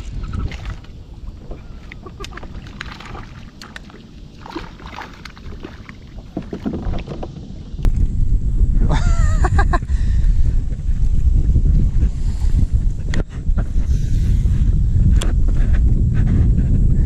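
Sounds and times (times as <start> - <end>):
water lapping around kayak: 0.0 - 8.2, 9.5 - 17.0
wind rumbling on microphone: 0.0 - 17.0.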